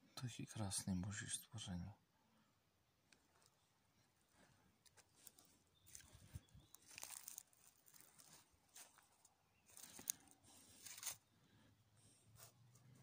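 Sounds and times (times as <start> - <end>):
dry leaves rustling and crunching: 5.1 - 11.2.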